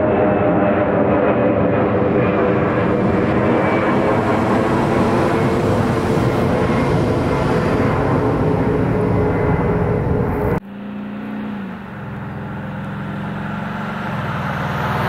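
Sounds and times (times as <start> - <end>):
rumble of train wheels: 0.0 - 10.6.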